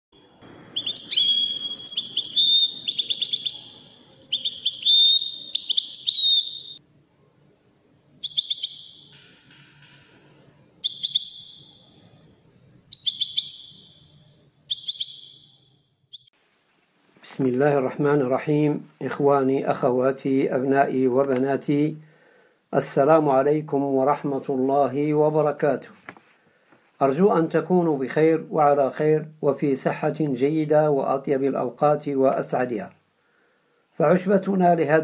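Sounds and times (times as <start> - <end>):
songbird trilling: 0.7 - 6.8, 8.2 - 9.9, 10.8 - 12.2, 12.9 - 16.3.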